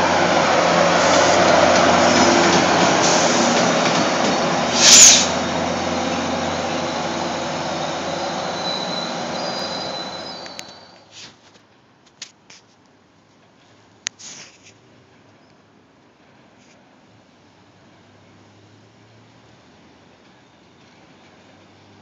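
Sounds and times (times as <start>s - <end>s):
train rumbling past: 0.0s - 11.2s
sharp loud burst: 0.8s - 5.5s
train wheel squeal: 0.9s - 11.2s.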